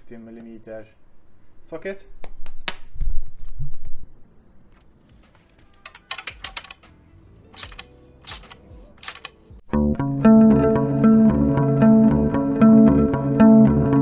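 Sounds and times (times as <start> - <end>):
socket ratchet clicking: 5.8 - 6.9, 7.6 - 9.4.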